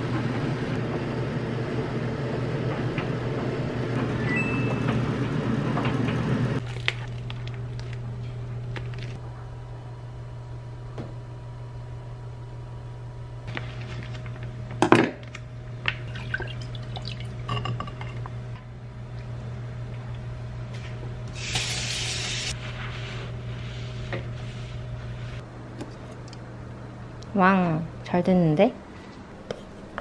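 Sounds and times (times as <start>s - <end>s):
steady low hum: 0.0s - 30.0s
liquid pouring into pot: 16.0s - 17.6s
paper towel rustling and wiping: 21.4s - 25.4s.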